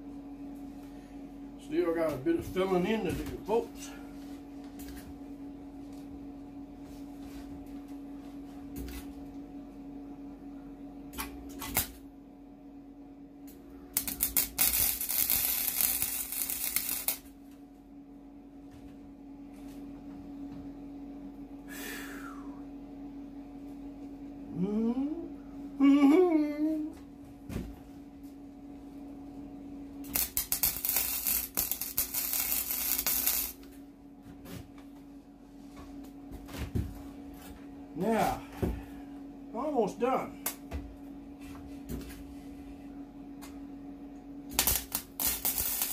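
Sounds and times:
low hum: 0.0s - 45.9s
arc welder crackling: 11.1s - 12.1s, 13.4s - 17.7s, 29.9s - 33.8s, 44.4s - 45.9s.

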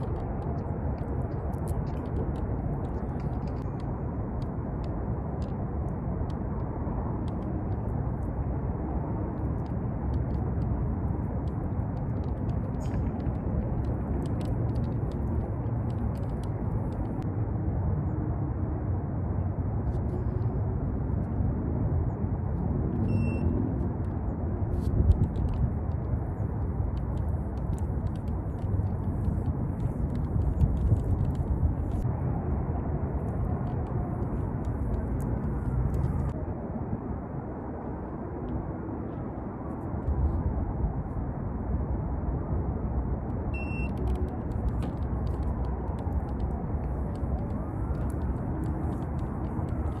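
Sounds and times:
outdoor background rumble: 0.0s - 50.0s
electronic beep: 23.1s - 23.6s, 43.6s - 44.0s.

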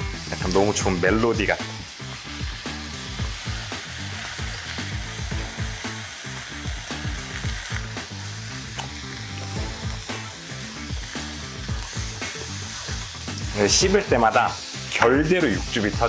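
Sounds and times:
meat sizzling in a frying pan: 0.0s - 16.0s
backing track with steady beat: 4.8s - 6.0s, 9.4s - 16.0s.

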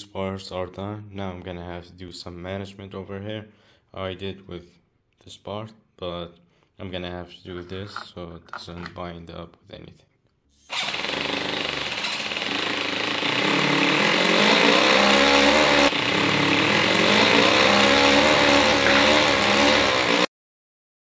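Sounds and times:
small engine revving roughly: 10.7s - 20.3s.

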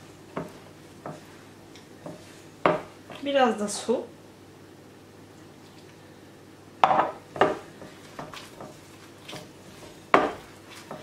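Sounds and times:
glass bowl knocking and clinking: 6.8s - 7.6s.

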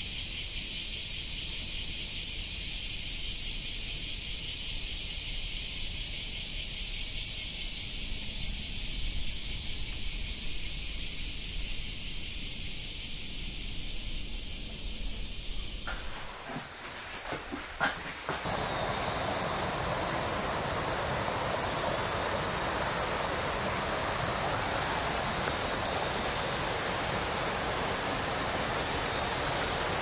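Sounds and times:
insects chorus shrill hiss: 0.0s - 30.0s.

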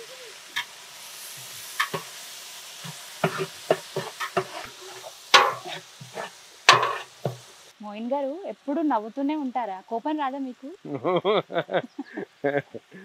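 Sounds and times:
food sizzling in pot: 0.0s - 13.0s
ladle scraping and knocking pot: 1.8s - 2.1s, 2.8s - 7.5s.

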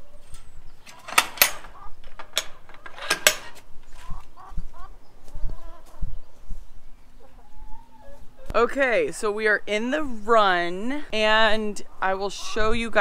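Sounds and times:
chickens clucking: 0.0s - 8.6s, 11.6s - 13.0s
metal latch clacking: 0.3s - 3.7s.

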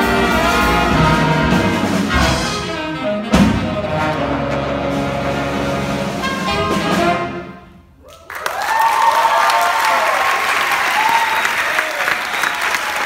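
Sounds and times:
big band holding a chord: 0.0s - 7.8s
audience applause and cheering: 8.0s - 13.0s.

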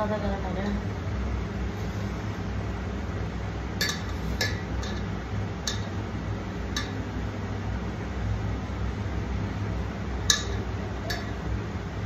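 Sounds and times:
steady low hum: 0.0s - 12.0s
light clicks against steel pot: 3.8s - 6.0s.

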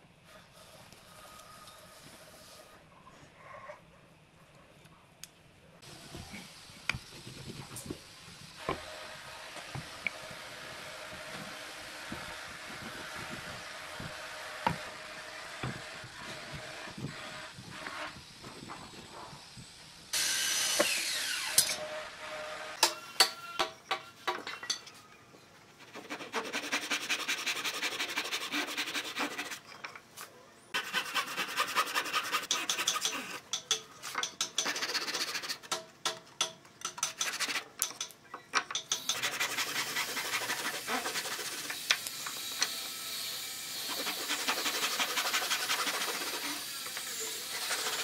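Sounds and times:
hand saw cutting wood: 20.2s - 23.7s, 25.8s - 29.7s, 30.8s - 37.8s, 38.9s - 48.0s.

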